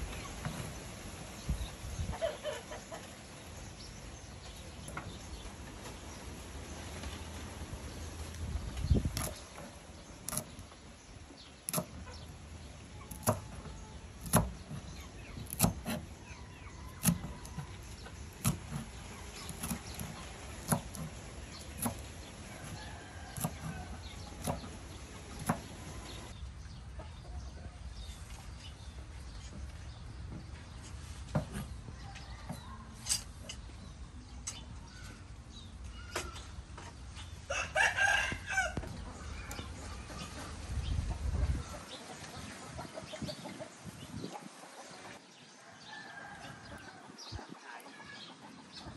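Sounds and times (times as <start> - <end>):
chickens clucking: 0.0 - 6.0, 8.7 - 28.5, 35.9 - 48.9
knife chopping on wooden block: 14.2 - 14.8, 15.4 - 16.0, 18.4 - 24.8.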